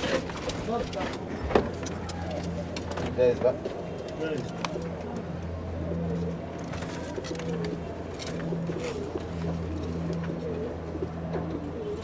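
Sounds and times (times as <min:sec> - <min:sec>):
steady low hum: 0:00.0 - 0:12.0
pigeons cooing: 0:01.9 - 0:12.0.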